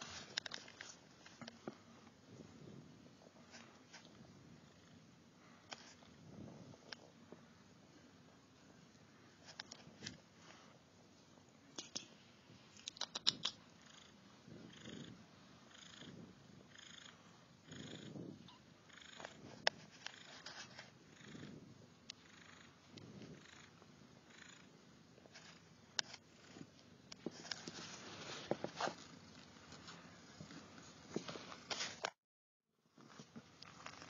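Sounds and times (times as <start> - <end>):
cat purring: 13.0 - 31.5.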